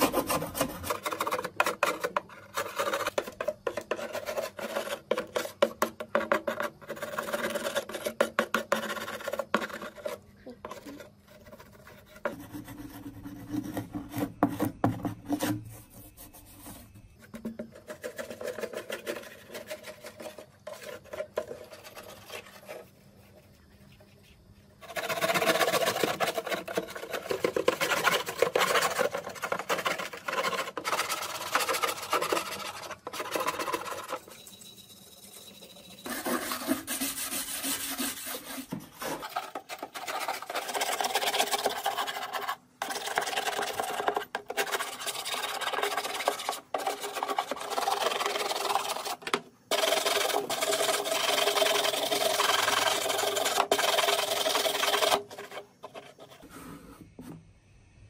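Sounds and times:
hand scraper scraping dirt: 0.0 - 10.2, 24.8 - 34.3, 36.0 - 56.9.

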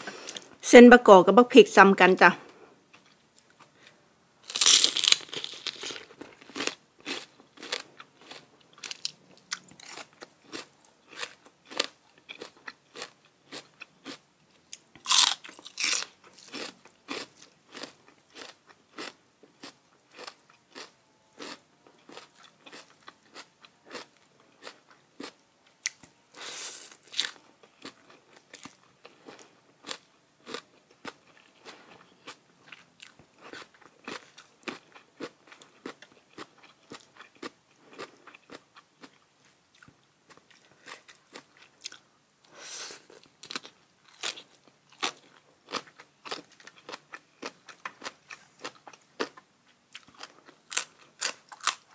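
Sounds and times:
crunching bites: 4.5 - 14.2, 15.0 - 26.1, 50.0 - 51.9
chewing food: 4.5 - 51.9.

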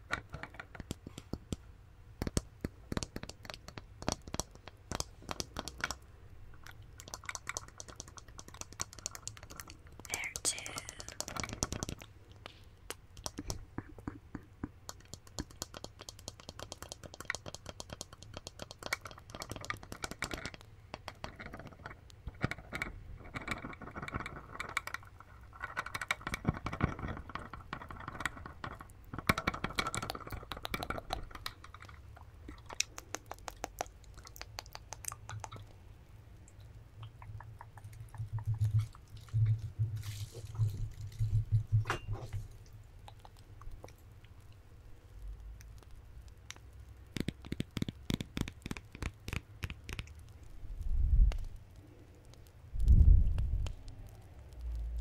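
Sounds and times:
fingernails tapping on plastic figure: 2.2 - 6.0, 12.9 - 25.0, 47.1 - 50.1.

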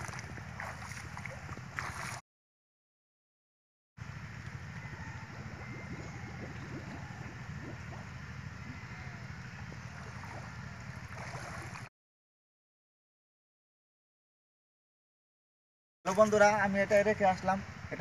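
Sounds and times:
water splashing around legs: 0.0 - 2.2, 9.9 - 11.9
wind rumbling on microphone: 0.0 - 2.2, 4.0 - 11.9.

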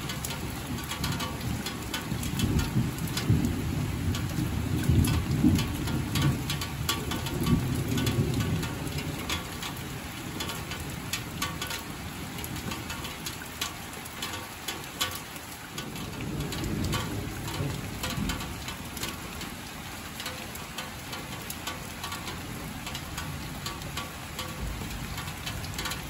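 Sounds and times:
raindrops ticking on a surface: 0.0 - 26.0
steady rain: 0.0 - 26.0
distant thunder rumble: 0.7 - 13.2, 15.8 - 21.4.

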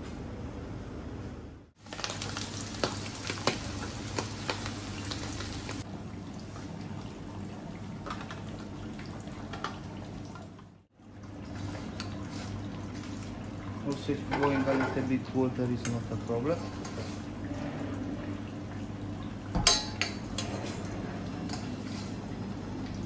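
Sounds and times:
sauce sizzling in frying pan: 1.8 - 5.9
metal ladle clinking on pan: 19.6 - 20.5.

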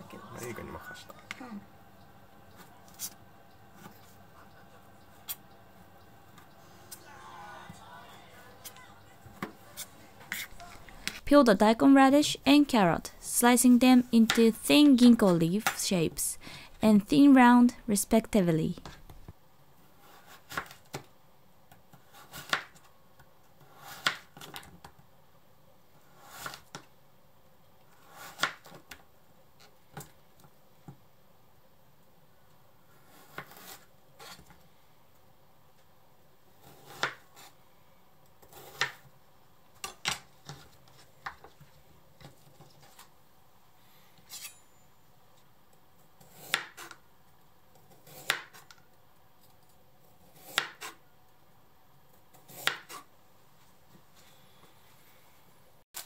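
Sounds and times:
knife slicing vegetables: 33.0 - 34.5.

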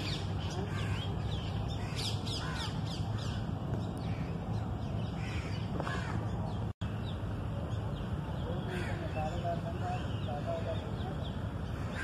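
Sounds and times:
crows cawing: 1.8 - 3.4, 5.2 - 6.2, 8.7 - 9.4, 11.7 - 12.0.

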